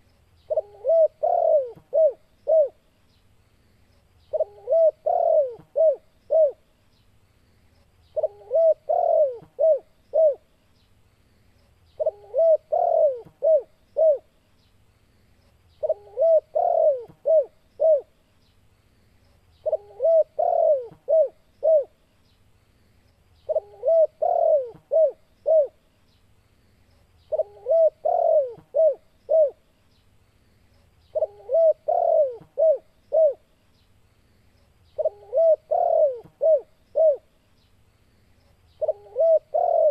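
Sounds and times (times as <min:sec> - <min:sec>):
dove cooing: 0:00.5 - 0:02.8, 0:04.3 - 0:06.7, 0:08.2 - 0:10.5, 0:12.0 - 0:14.3, 0:15.8 - 0:18.1, 0:19.6 - 0:22.0, 0:23.5 - 0:25.8, 0:27.3 - 0:29.6, 0:31.1 - 0:33.5, 0:35.0 - 0:37.3, 0:38.8 - 0:39.9.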